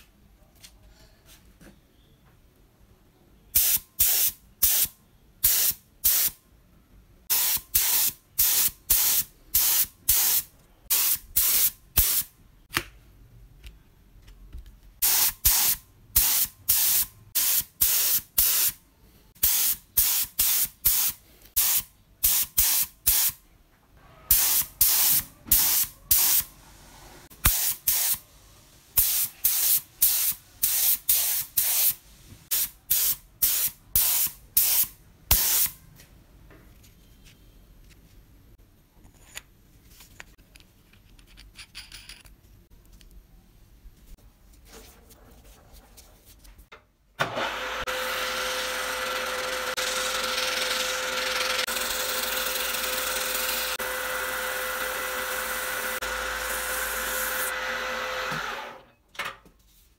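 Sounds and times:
spray paint can hissing: 7.3s - 12.3s, 15.0s - 18.8s, 27.4s - 28.2s, 29.0s - 35.7s.

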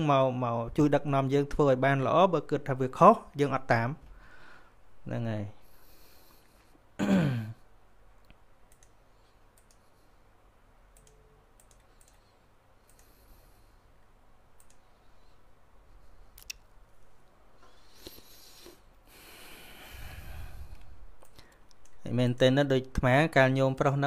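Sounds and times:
computer mouse clicks: 8.2s - 9.9s, 10.9s - 13.2s, 14.6s - 14.9s, 20.8s - 22.0s.

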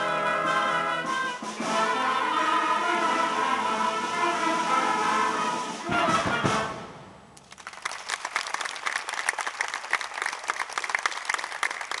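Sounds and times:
audience applause: 7.4s - 12.0s.

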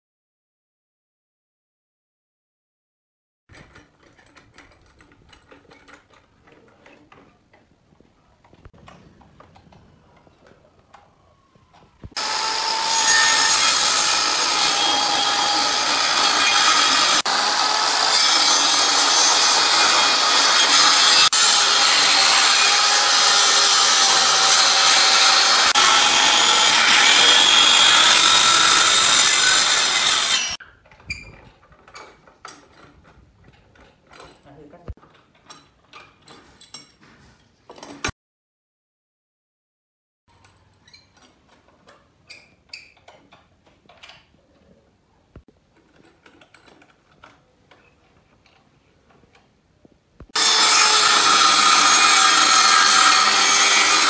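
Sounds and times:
circular saw cutting wood: 12.1s - 30.6s, 50.3s - 54.0s.

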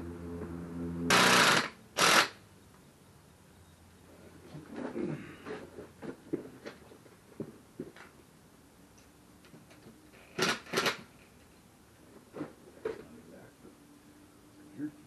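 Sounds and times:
cordless drill driving: 1.1s - 2.4s
tools clicking and knocking: 9.6s - 11.1s.

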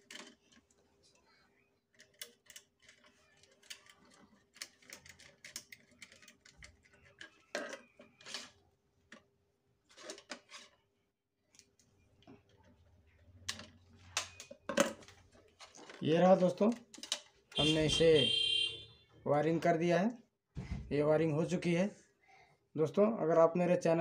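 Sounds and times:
tools clicking and tapping: 16.5s - 18.1s.

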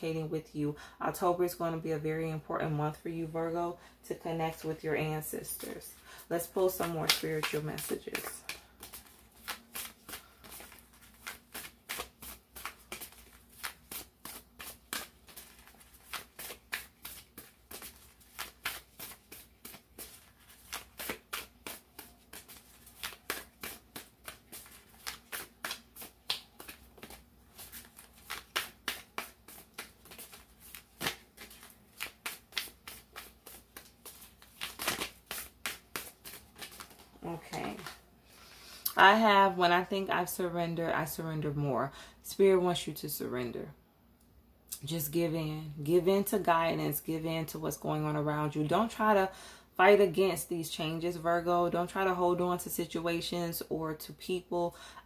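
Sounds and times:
cards being shuffled: 6.6s - 38.0s.

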